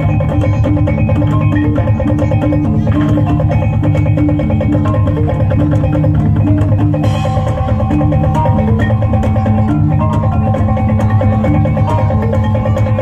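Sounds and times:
drums and hand percussion: 0.0s - 13.0s
plucked string melody: 0.0s - 13.0s.

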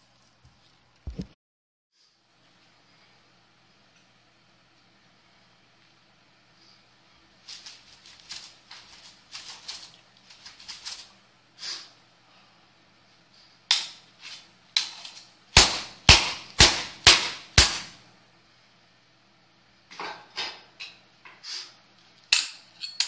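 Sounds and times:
blade striking metal wire: 13.7s - 14.0s, 14.8s - 18.0s.

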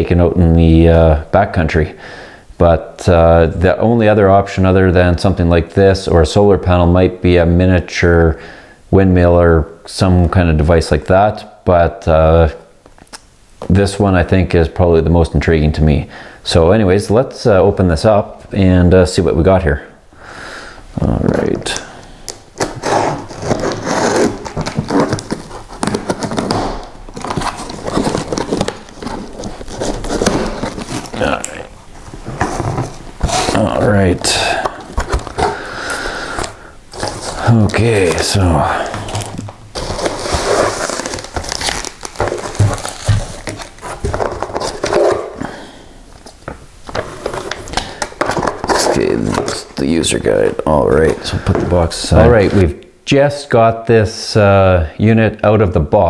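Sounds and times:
cardboard flaps scraping and crackling: 22.6s - 35.6s, 36.9s - 45.4s.

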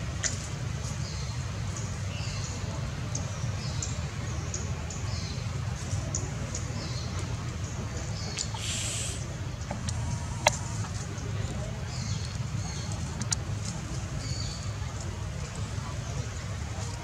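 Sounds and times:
steady low rumble: 0.0s - 17.0s
brief hiss: 8.4s - 9.3s.

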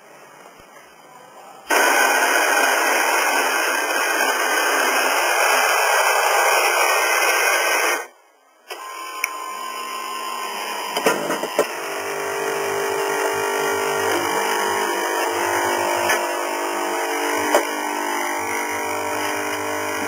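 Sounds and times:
coffee grinder running: 1.7s - 8.1s, 8.7s - 20.0s
quiet motor running: 8.7s - 20.0s.

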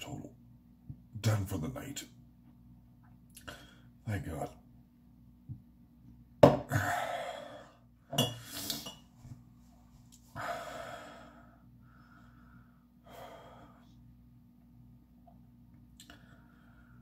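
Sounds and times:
man sighing heavily: 6.7s - 7.6s.

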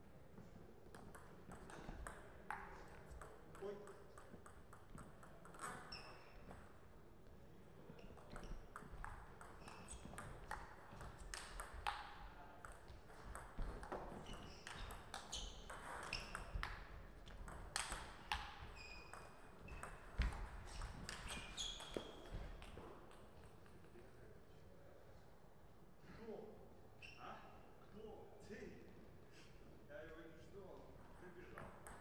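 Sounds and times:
table tennis ball hits: 8.3s - 23.6s.

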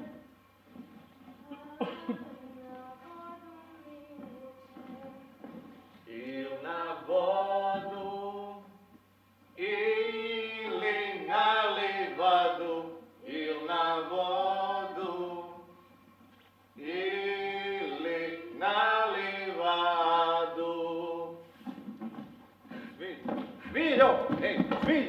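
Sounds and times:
person singing unaccompanied: 1.4s - 8.7s, 9.6s - 15.7s.

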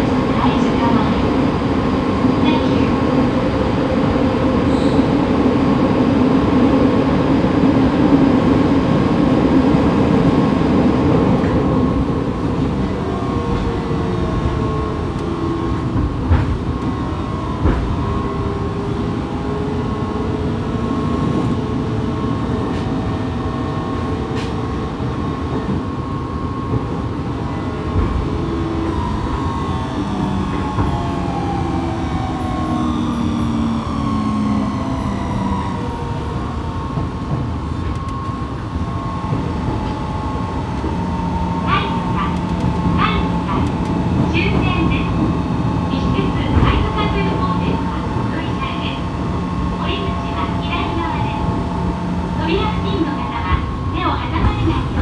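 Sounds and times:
train wheel and running noise: 0.0s - 55.0s.

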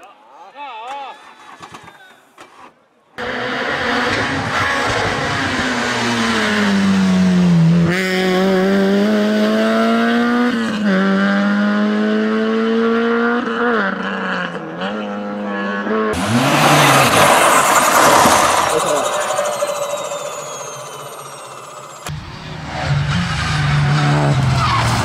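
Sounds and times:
rally car engine revving: 3.2s - 25.0s
rush of broad noise: 16.2s - 22.1s.

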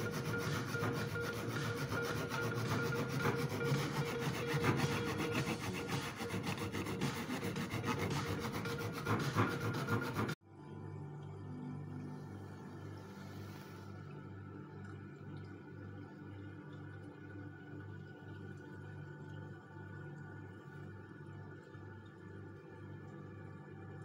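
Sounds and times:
back saw cutting wood: 0.0s - 10.4s.

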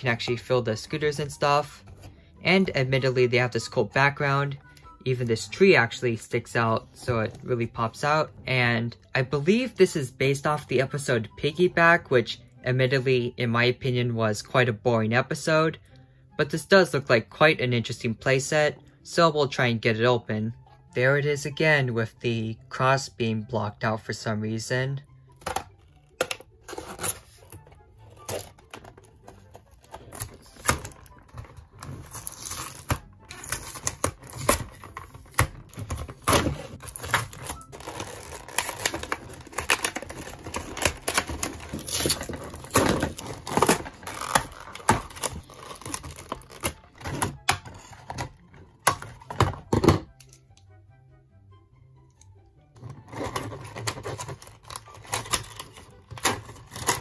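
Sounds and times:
background music: 0.0s - 57.0s
packaging being torn and crinkled: 25.8s - 48.3s, 53.0s - 57.0s.

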